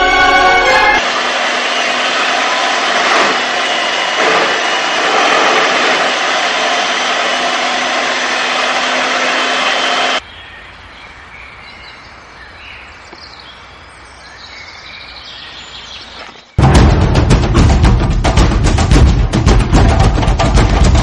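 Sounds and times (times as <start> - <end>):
music: 0.0 - 1.0, 16.6 - 21.0
loud rushing noise: 0.0 - 10.2.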